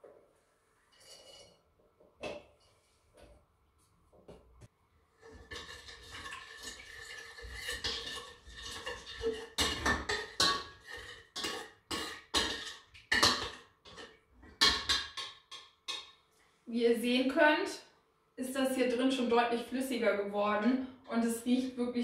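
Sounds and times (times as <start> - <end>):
metal spoon scraping a pot: 0.9 - 1.6, 5.2 - 16.1.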